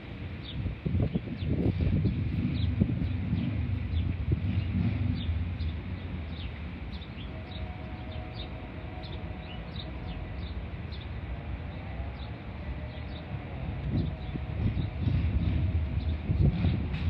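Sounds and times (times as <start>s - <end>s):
low rumble: 0.7s - 17.0s.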